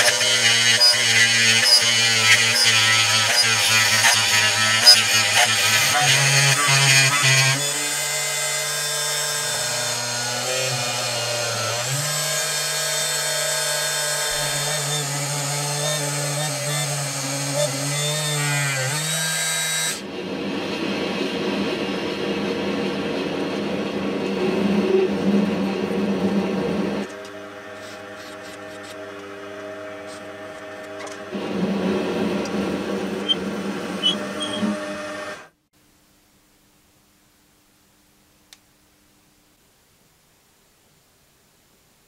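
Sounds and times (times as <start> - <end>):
electric drill whining: 0.0 - 20.0, 32.3 - 35.5
lathe turning with cutting tool: 0.0 - 20.0, 26.2 - 35.5.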